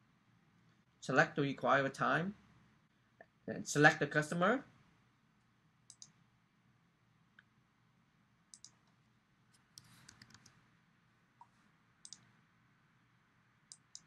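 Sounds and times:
computer mouse clicks: 0:05.9 - 0:06.2, 0:08.5 - 0:09.0, 0:09.6 - 0:10.6, 0:11.4 - 0:12.3, 0:13.7 - 0:14.0.

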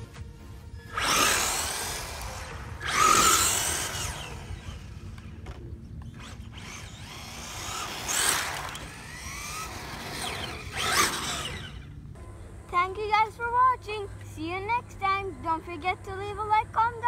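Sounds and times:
rc cars motor whine passing: 0:00.0 - 0:13.1.

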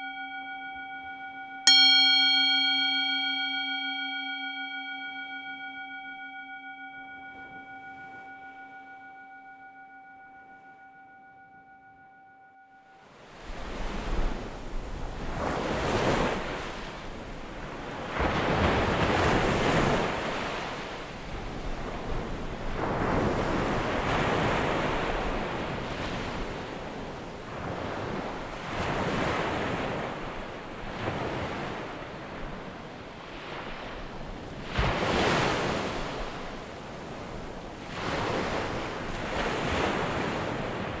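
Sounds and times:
alarm chime ringing: 0:00.0 - 0:13.0
ocean waves washing in: 0:13.0 - 0:41.0.

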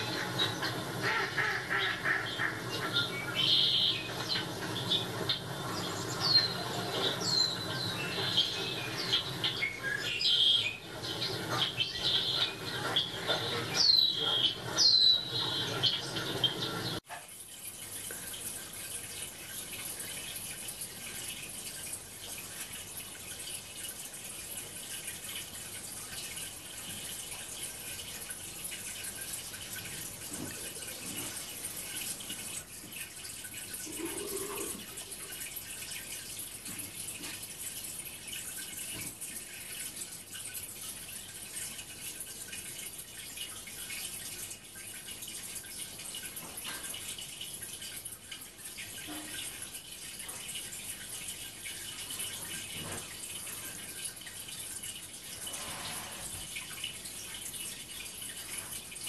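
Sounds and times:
birdsong: 0:00.0 - 0:17.0
running water from television: 0:00.0 - 0:59.0.

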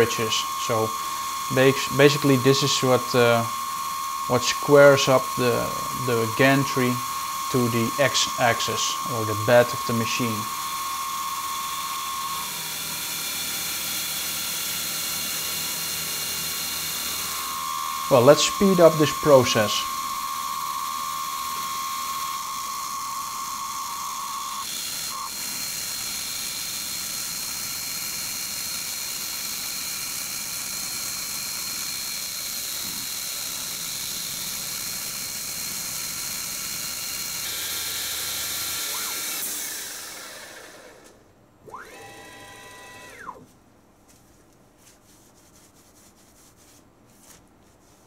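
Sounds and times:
coolant sprayer hissing: 0:00.0 - 0:12.2, 0:17.2 - 0:25.2
milling machine cutting metal: 0:00.0 - 0:41.0
brief rubbing sound: 0:44.2 - 0:48.0.

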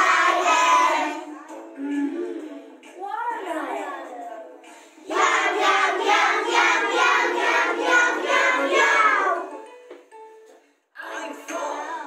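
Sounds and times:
children singing in chorus: 0:00.0 - 0:01.4, 0:05.1 - 0:09.6.

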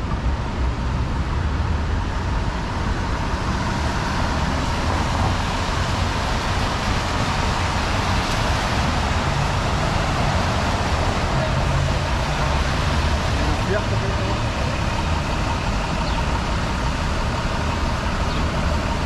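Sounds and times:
cars passing on wet pavement: 0:00.0 - 0:19.0
constant low traffic rumble: 0:00.0 - 0:19.0.

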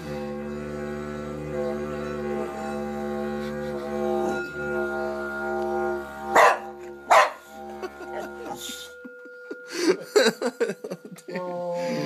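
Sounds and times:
didgeridoo drone: 0:00.0 - 0:12.0
dog barking loudly: 0:06.4 - 0:07.4.

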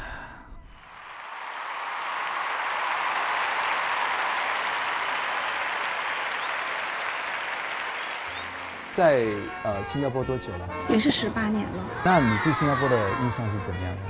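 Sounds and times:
applause: 0:00.8 - 0:09.6.

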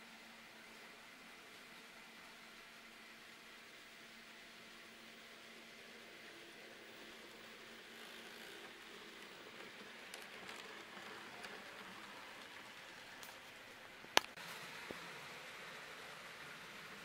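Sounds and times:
model train rattling on track: 0:05.8 - 0:13.8.

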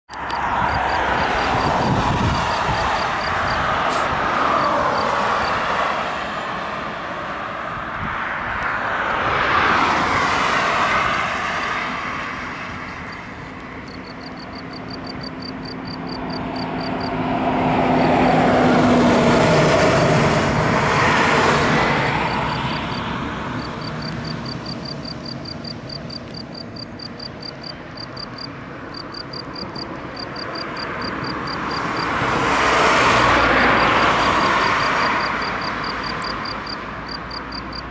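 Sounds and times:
cricket chirping: 0:00.1 - 0:05.8, 0:11.9 - 0:18.4, 0:21.9 - 0:37.9
cars passing: 0:00.1 - 0:37.9.

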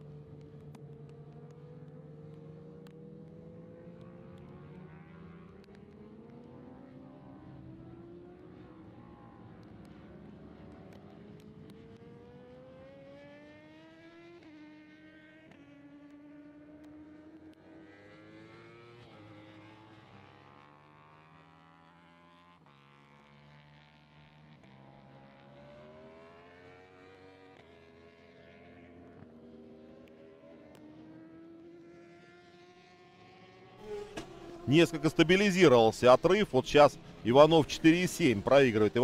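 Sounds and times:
superbike engines accelerating: 0:33.8 - 0:39.0.

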